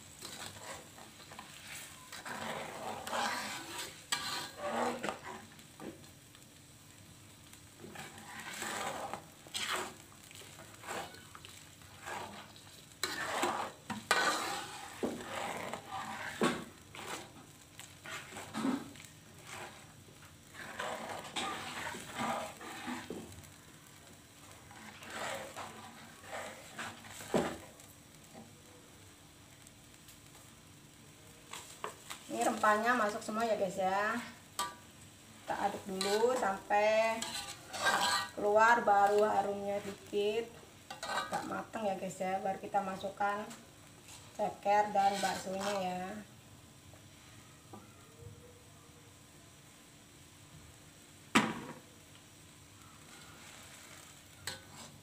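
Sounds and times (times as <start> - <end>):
metal spatula scraping a wok: 0.0 - 5.8, 7.7 - 28.5, 31.5 - 34.9, 35.5 - 46.2, 53.0 - 55.0
soft sizzle: 0.0 - 55.0.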